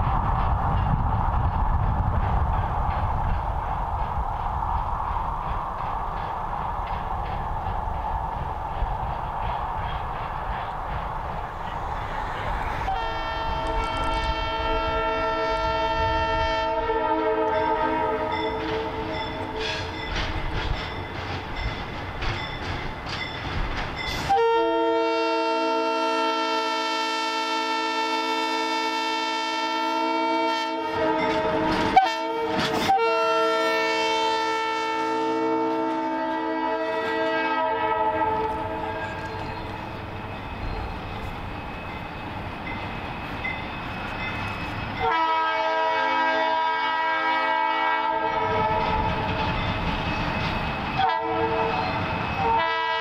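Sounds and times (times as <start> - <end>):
locomotive engine rumbling: 0.0 - 24.4, 36.8 - 45.4
locomotive air horn blasts: 12.8 - 19.1, 24.3 - 39.0, 45.0 - 48.8, 51.0 - 53.0.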